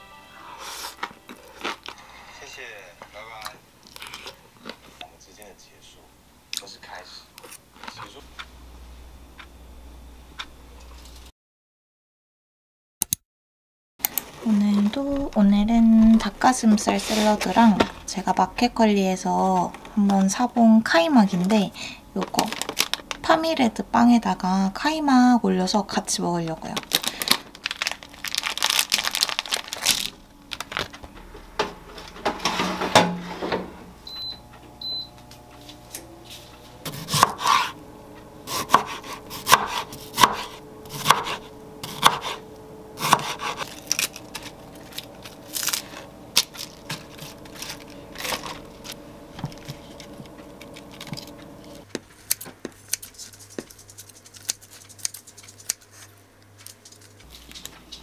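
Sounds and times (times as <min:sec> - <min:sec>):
plastic wrapping crinkling: 0:22.2 - 0:23.3, 0:26.7 - 0:31.0, 0:43.6 - 0:58.0
knife cutting onto wooden board: 0:38.5 - 0:42.4, 0:43.0 - 0:43.6.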